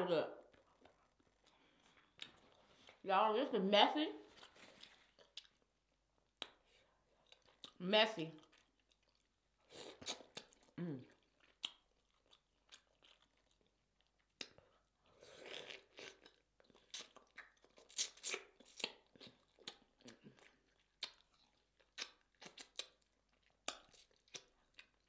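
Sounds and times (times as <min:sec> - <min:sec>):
wet chewing and lip smacks: 0:00.4 - 0:03.0, 0:04.3 - 0:07.8, 0:08.4 - 0:25.0.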